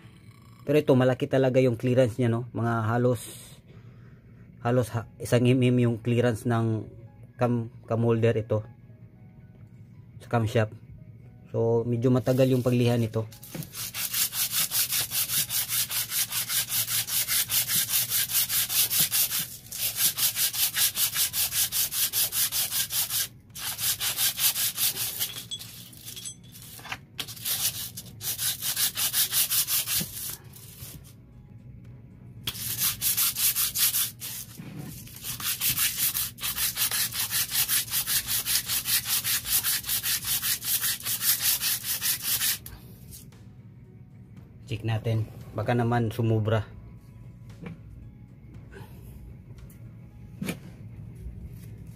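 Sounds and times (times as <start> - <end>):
metal rubbed on sandpaper: 12.2 - 31.1, 32.5 - 43.2.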